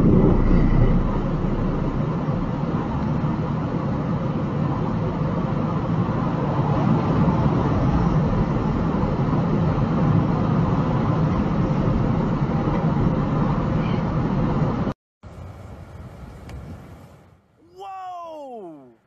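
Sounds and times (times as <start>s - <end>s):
truck engine: 0.0s - 13.7s
road noise: 0.0s - 19.0s.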